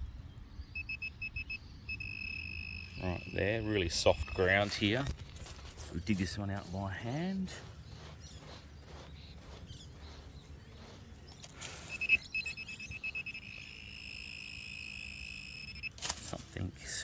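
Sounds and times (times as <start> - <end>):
metal detector beeping: 0.7 - 5.1, 11.4 - 16.0
hands scraping soil: 3.8 - 12.6.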